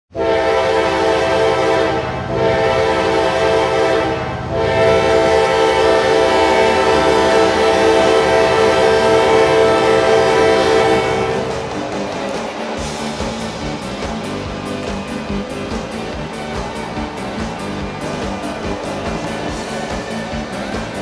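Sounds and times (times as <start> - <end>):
goal horn blasts: 0.1 - 12.0.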